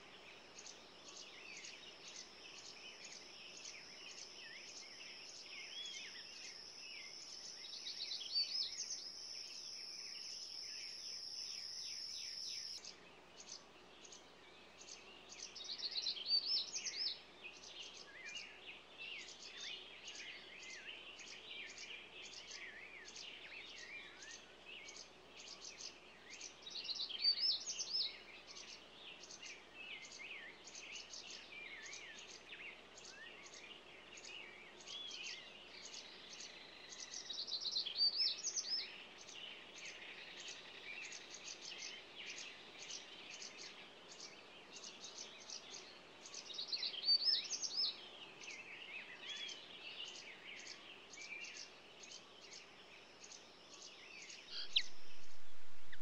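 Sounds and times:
small songbirds chirping: 0.0 - 56.0.

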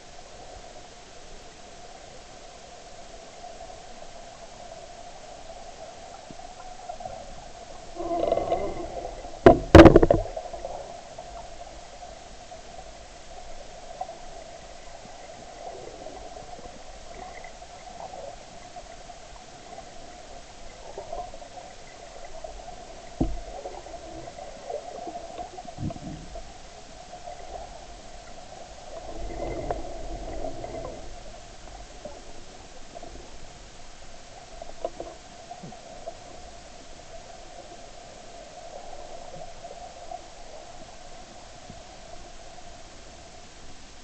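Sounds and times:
muffled underwater water hiss: 0.0 - 44.0.

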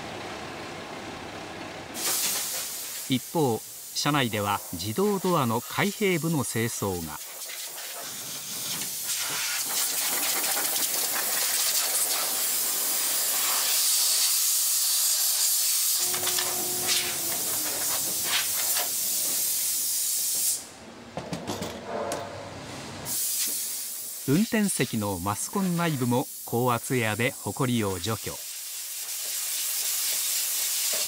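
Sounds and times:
compressed air blow gun hissing: 2.0 - 4.0, 7.2 - 20.7, 23.1 - 24.3, 28.4 - 31.0.

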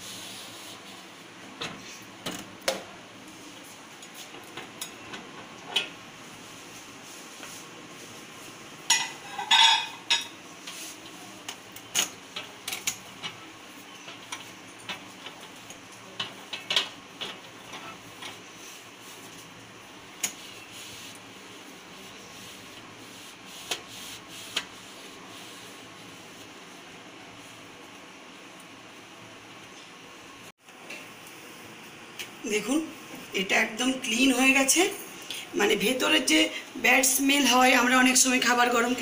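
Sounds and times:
glass plate clinking: 8.9 - 10.4.

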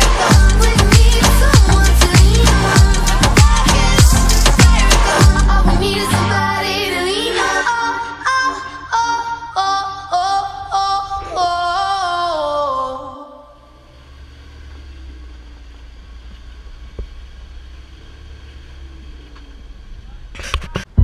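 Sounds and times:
pop music with female singer: 0.0 - 13.5
car engine rumbling: 0.0 - 21.0.

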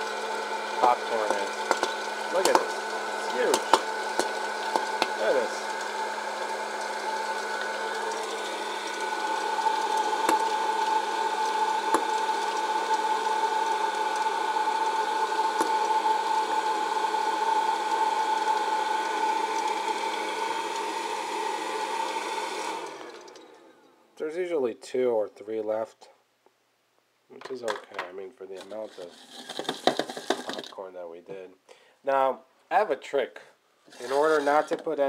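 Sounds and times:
popcorn popper fan whining: 0.0 - 24.0, 28.6 - 30.7, 33.9 - 35.0.

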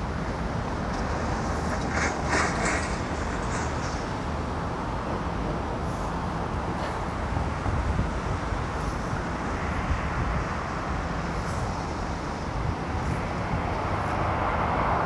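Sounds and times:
distant jet engine: 0.0 - 15.0
storm wind rumble: 0.0 - 15.0.

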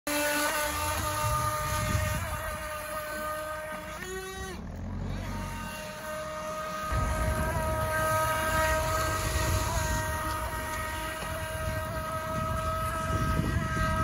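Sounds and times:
high electric motor whine: 0.1 - 14.0
low rumble: 6.8 - 14.0.

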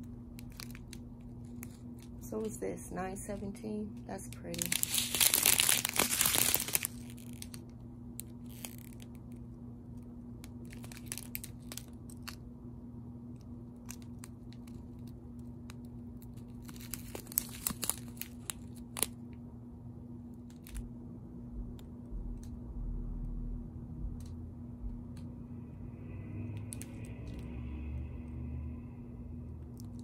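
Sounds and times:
steady low hum: 0.0 - 30.0
plastic bags crinkling: 0.3 - 9.3, 10.6 - 12.4, 13.8 - 19.2, 20.4 - 20.8.

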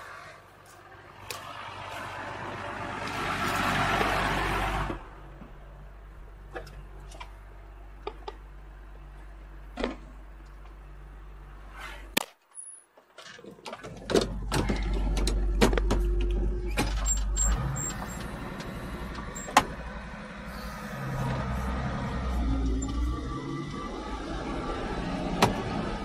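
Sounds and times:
tractor diesel engine droning: 0.0 - 11.7, 13.9 - 26.0
cab controls clicking and knocking: 13.4 - 19.8.

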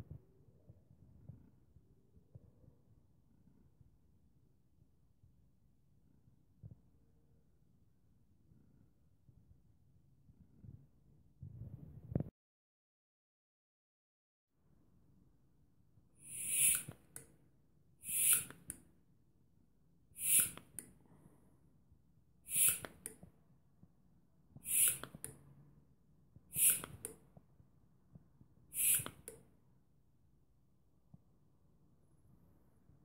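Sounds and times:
hand vacuum pump hiss and click: 16.2 - 17.3, 18.0 - 18.8, 20.2 - 20.9, 22.5 - 23.2, 24.6 - 25.4, 26.5 - 27.2, 28.7 - 29.4.

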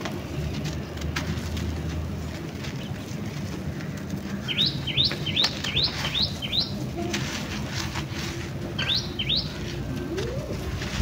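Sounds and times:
bird chirping: 4.4 - 6.8, 8.8 - 9.6.

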